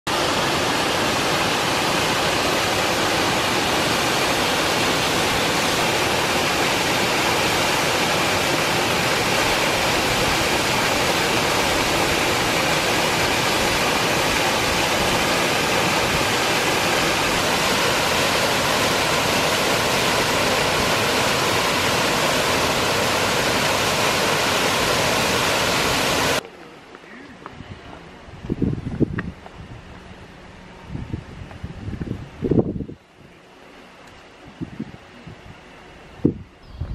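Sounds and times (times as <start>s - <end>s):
waterfall rushing onto rocks: 0.1s - 26.4s.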